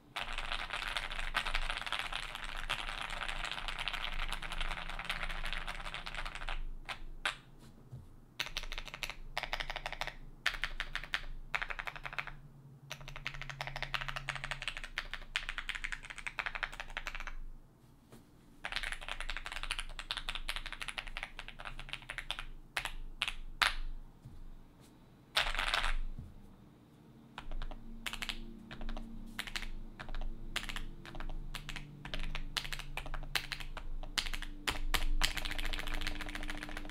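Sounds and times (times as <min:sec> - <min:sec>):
mechanical keyboard typing: 0:27.4 - 0:36.9.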